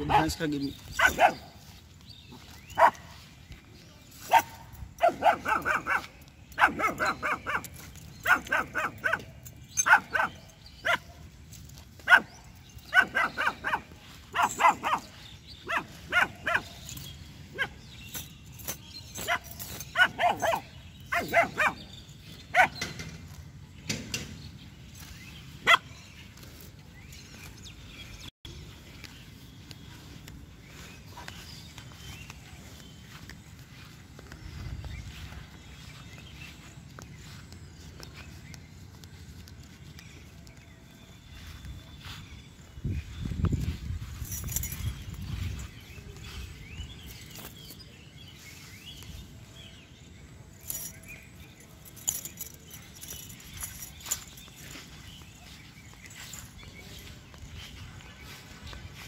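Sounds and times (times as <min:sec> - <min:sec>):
puppy barking high-pitched: 0:01.0 - 0:01.5, 0:02.8 - 0:03.0, 0:04.3 - 0:11.1, 0:12.1 - 0:12.3, 0:12.9 - 0:16.8, 0:20.0 - 0:21.8, 0:22.5 - 0:22.8, 0:25.6 - 0:25.8.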